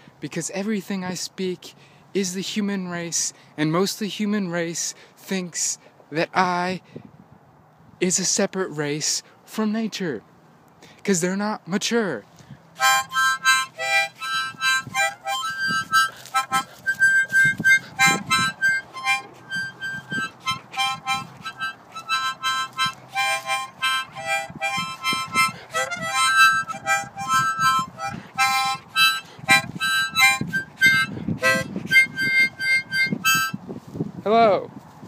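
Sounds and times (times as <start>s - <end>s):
harmonica chords and notes: 12.8s - 33.6s.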